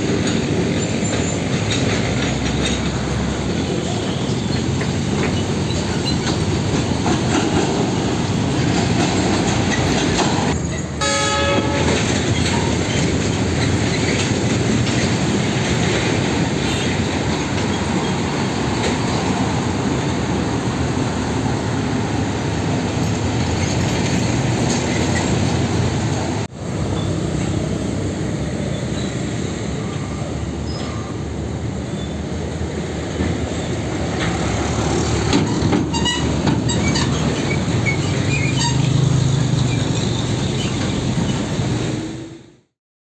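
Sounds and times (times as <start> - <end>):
clanks and rattles: 0.0 - 3.5, 4.6 - 10.6, 11.8 - 19.0
heavy trucks driving past: 0.0 - 42.6
trailers rumbling over road: 0.0 - 42.6.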